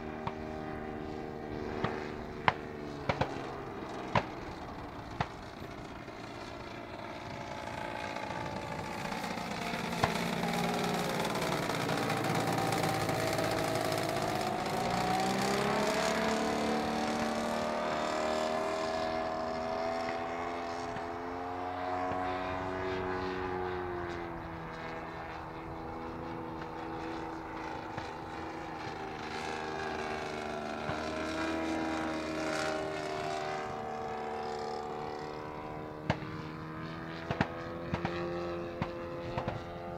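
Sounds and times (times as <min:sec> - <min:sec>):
model plane engine drone: 0:00.0 - 0:39.9.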